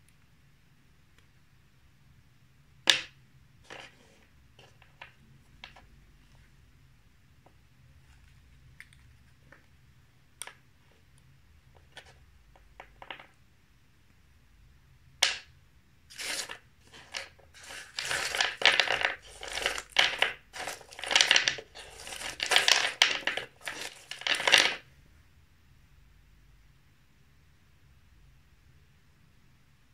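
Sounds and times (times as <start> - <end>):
candy wrappers crinkling: 16.1 - 24.8.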